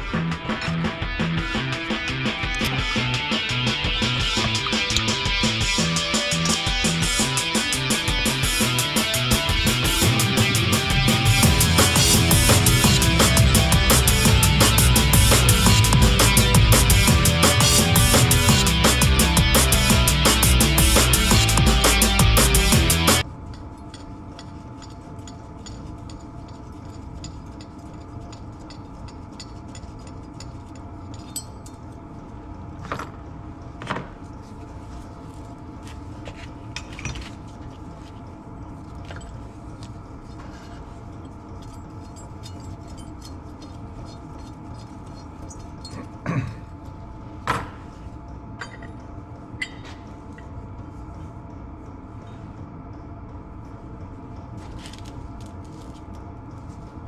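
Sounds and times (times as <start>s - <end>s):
steady background hum: 0.0s - 57.0s
metal parts clinking: 23.5s - 31.8s, 41.2s - 46.2s.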